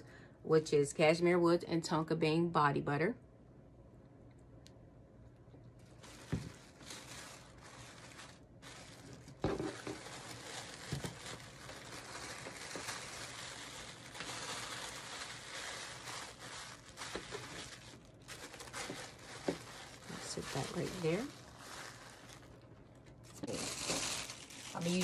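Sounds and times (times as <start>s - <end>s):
tissue paper rustling: 5.8s - 25.0s.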